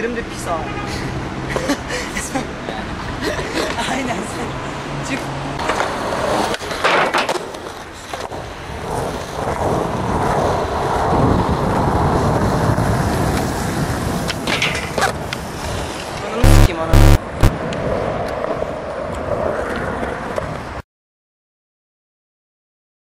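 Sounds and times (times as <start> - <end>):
skateboard wheels rolling on asphalt: 2.8 - 16.4, 17.2 - 20.8
skateboard clacking and scraping rail: 5.6 - 11.4, 12.8 - 16.2.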